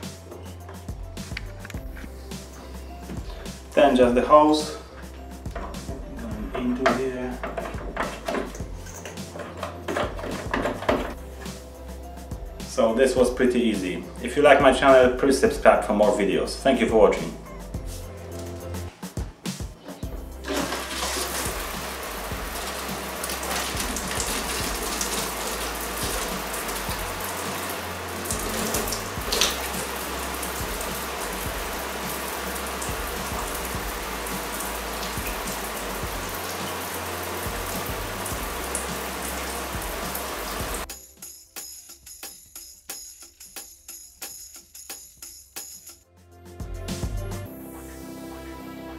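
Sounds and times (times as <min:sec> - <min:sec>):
shower water spraying on tiles: 0:20.2 - 0:40.9.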